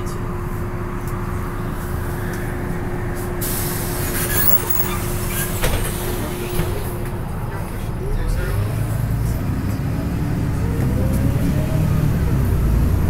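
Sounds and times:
bus engine and road rumble: 0.0s - 13.0s
hiss: 3.4s - 5.4s.

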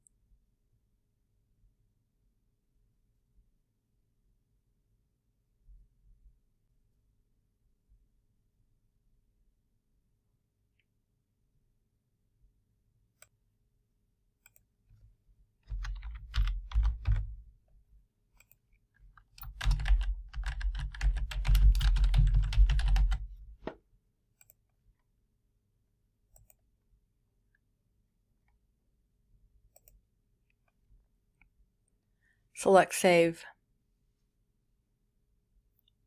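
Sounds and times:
typing on computer keyboard: 15.7s - 17.4s, 19.2s - 23.3s.

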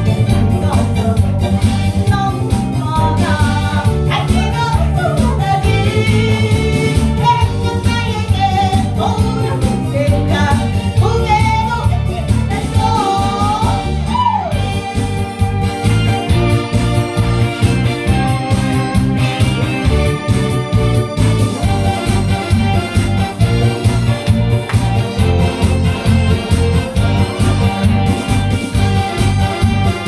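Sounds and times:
woman singing into a microphone: 0.0s - 14.6s
amplified accompaniment with steady beat: 0.0s - 30.0s.

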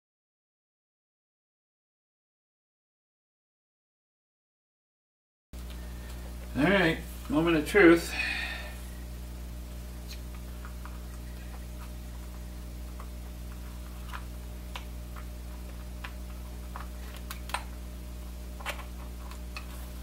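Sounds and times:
low hum: 5.6s - 20.0s.

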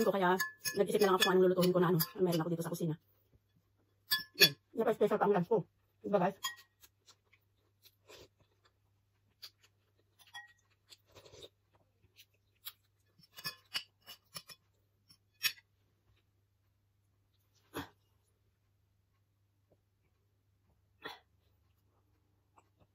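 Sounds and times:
cutlery clinking on ceramic plate: 0.0s - 2.4s, 4.1s - 4.6s, 6.4s - 6.7s, 10.2s - 10.6s, 13.3s - 14.6s.

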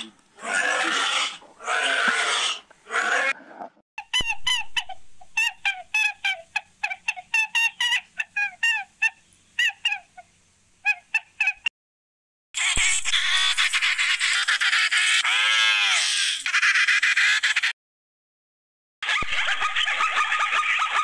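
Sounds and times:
guinea pigs wheeking: 14.3s - 16.6s.

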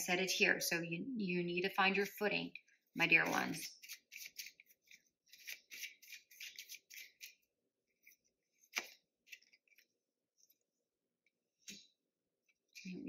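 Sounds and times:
cards shuffling swishes: 3.2s - 7.4s, 8.0s - 9.9s.

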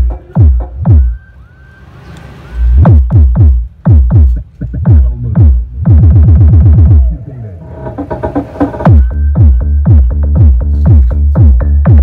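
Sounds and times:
deep bass kick hits: 0.0s - 1.1s, 2.8s - 7.2s, 8.9s - 12.0s.

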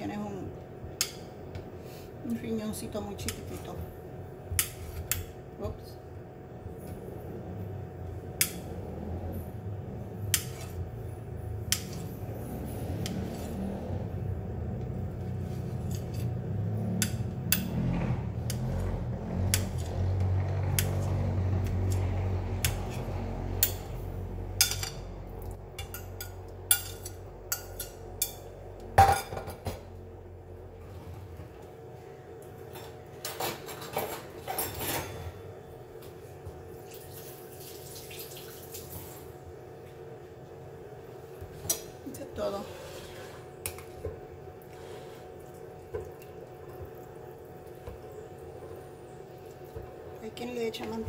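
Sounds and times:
low hum: 0.0s - 33.2s.

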